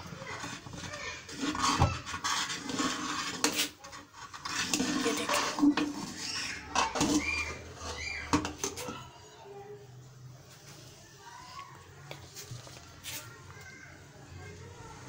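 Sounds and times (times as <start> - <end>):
metal spoon scraping pot: 0.2 - 9.0.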